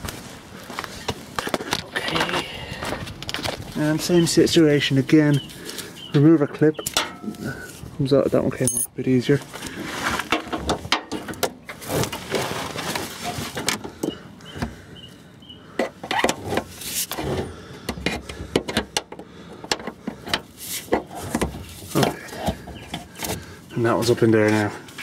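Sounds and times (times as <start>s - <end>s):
cable rustling and scraping: 9.5s - 10.9s, 11.7s - 13.8s.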